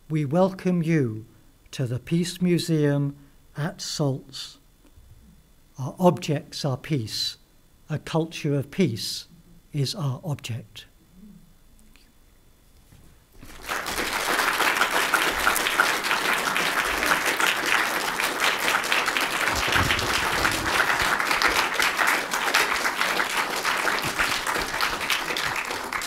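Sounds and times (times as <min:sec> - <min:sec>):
audience applauding: 0:13.4 - 0:26.0.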